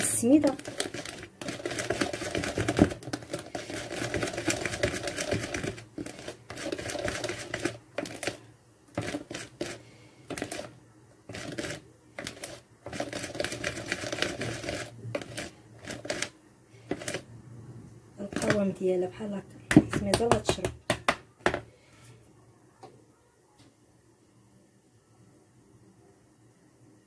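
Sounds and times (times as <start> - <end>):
whisk beating batter in bowl: 0.0 - 16.3, 16.9 - 17.3, 18.3 - 18.7.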